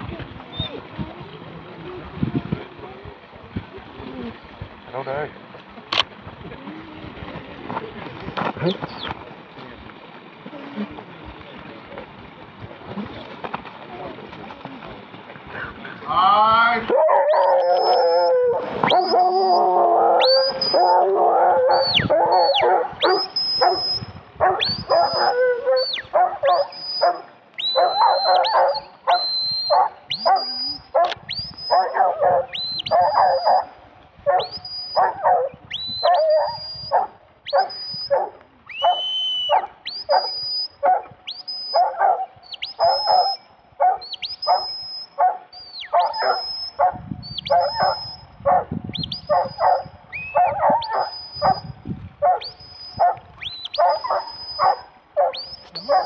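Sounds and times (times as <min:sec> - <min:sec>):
dog barking: 0:16.9 - 0:18.0, 0:21.7 - 0:23.8, 0:24.4 - 0:33.7, 0:34.3 - 0:41.1, 0:41.8 - 0:48.7, 0:49.3 - 0:56.0
dog yelping excitedly: 0:16.9 - 0:33.7, 0:34.3 - 0:56.0.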